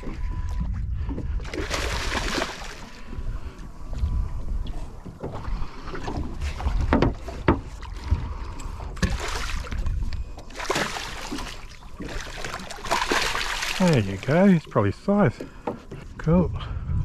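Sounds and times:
fish thrashing and splashing: 0:00.0 - 0:03.1, 0:05.2 - 0:14.8.

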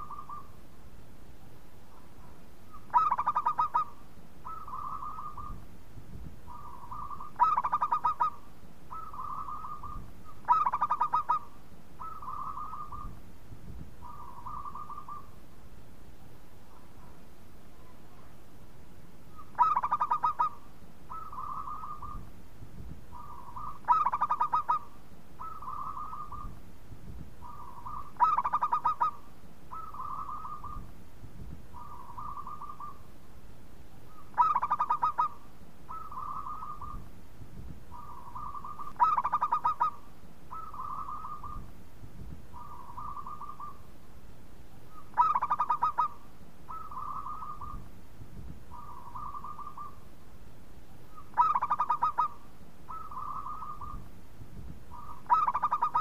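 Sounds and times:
dove cooing: 0:00.0 - 0:00.6, 0:01.9 - 0:05.6, 0:06.5 - 0:13.2, 0:14.0 - 0:15.4, 0:19.3 - 0:22.3, 0:23.1 - 0:26.6, 0:27.4 - 0:30.9, 0:31.7 - 0:33.1, 0:34.1 - 0:37.1, 0:37.9 - 0:41.7, 0:42.5 - 0:43.9, 0:44.9 - 0:47.9, 0:48.7 - 0:50.1, 0:51.1 - 0:54.1, 0:54.9 - 0:56.0.

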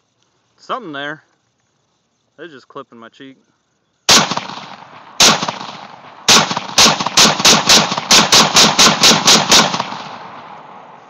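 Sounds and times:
rifle shots with echo: 0:04.1 - 0:11.0.

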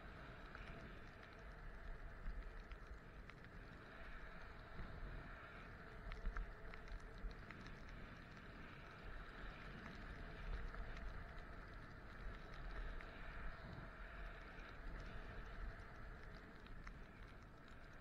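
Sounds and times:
wind rumble on microphone: 0:00.0 - 0:18.0.

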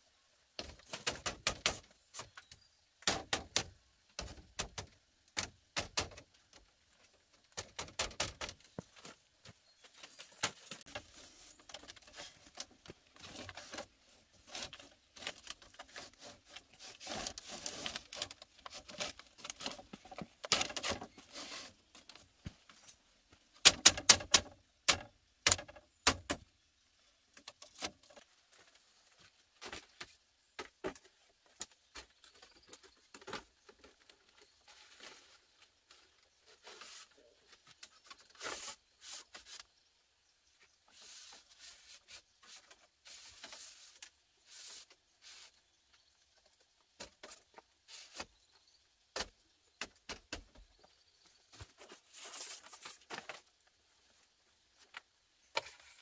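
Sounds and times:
bamboo strips clattering: 0:00.6 - 0:02.4, 0:03.0 - 0:26.4, 0:51.5 - 0:53.6
rustling: 0:08.4 - 0:23.0, 0:51.3 - 0:56.0.

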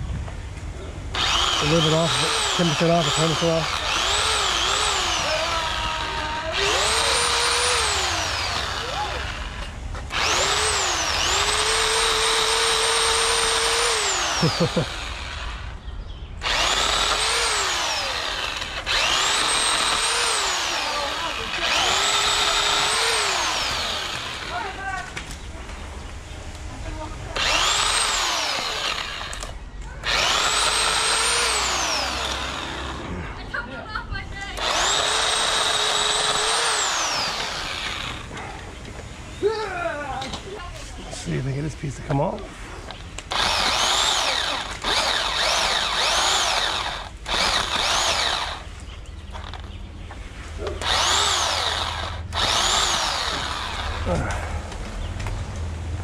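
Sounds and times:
electric chainsaw cutting wood: 0:01.1 - 0:15.8, 0:16.4 - 0:25.0, 0:27.3 - 0:33.3, 0:34.4 - 0:38.5, 0:42.9 - 0:49.8, 0:50.6 - 0:56.0
electric pole saw whining: 0:01.1 - 0:15.8, 0:16.4 - 0:25.0, 0:27.4 - 0:33.5, 0:34.4 - 0:38.5, 0:42.9 - 0:49.7, 0:50.6 - 0:54.5.

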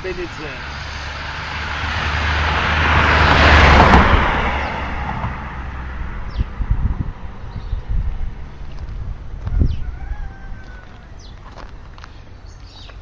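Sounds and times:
car passing by: 0:00.2 - 0:09.2.

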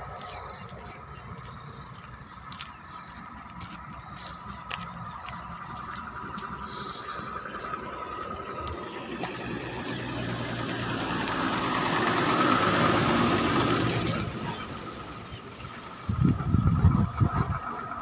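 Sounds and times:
vehicle passing by: 0:00.0 - 0:18.0
low rumbling on microphone: 0:16.0 - 0:18.0.

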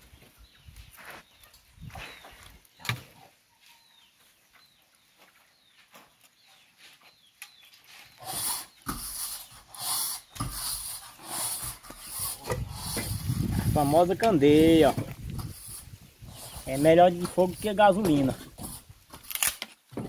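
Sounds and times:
rustling and scuffing: 0:00.0 - 0:08.2.

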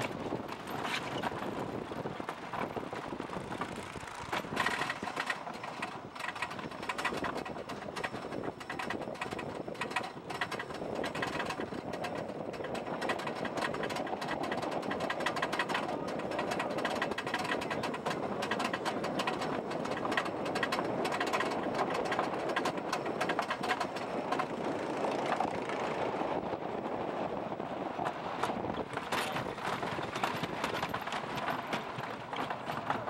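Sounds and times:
anti-rollback dogs clicking rapidly: 0:00.0 - 0:33.0.

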